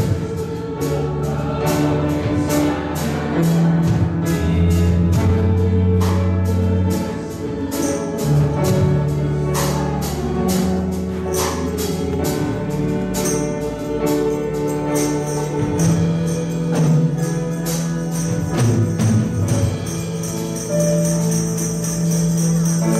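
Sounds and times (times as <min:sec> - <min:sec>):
praise band playing worship song: 0:00.0 - 0:22.9
tambourine jingling: 0:00.0 - 0:22.9.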